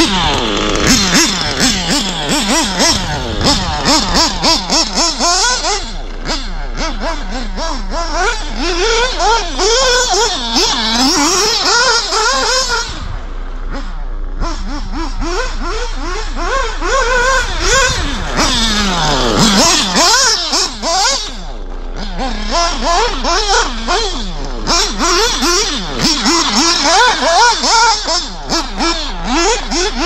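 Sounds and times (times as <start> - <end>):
rc car engine revving: 0.0 - 30.0.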